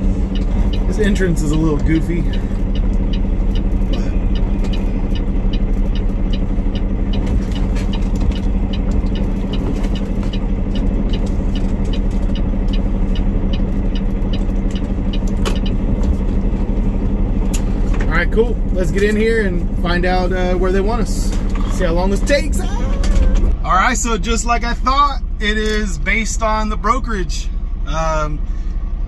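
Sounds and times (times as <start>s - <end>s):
light regular ticking: 0.0s - 22.5s
diesel engine humming: 0.0s - 29.0s.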